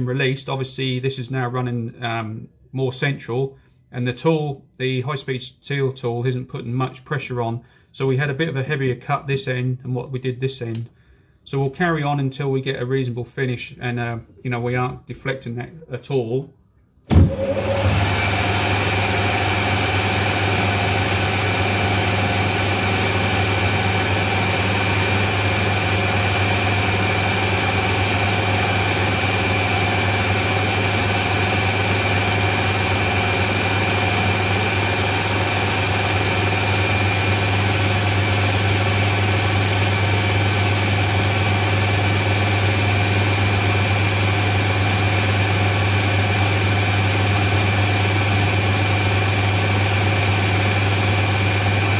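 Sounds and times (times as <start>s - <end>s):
metal lathe humming and whining: 17.3s - 51.9s.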